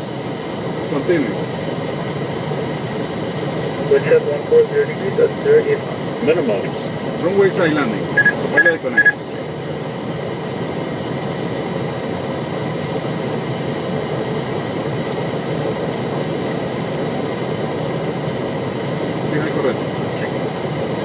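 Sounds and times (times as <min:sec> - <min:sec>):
jet engine and airflow noise: 0:00.0 - 0:21.0.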